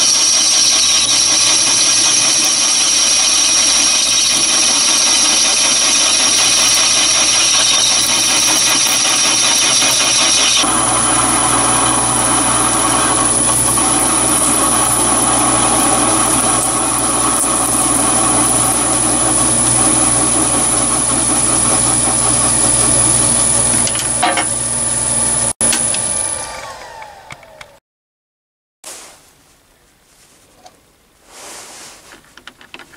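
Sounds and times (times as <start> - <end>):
thin high whine: 0.0 - 24.6
metal lathe cutting: 0.0 - 27.2.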